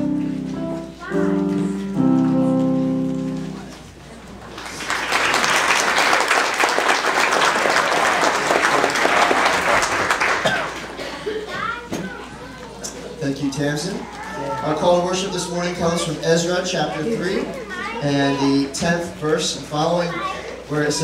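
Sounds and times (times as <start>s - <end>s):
keyboard chords: 0.0s - 4.0s
congregation applauding: 4.4s - 11.5s.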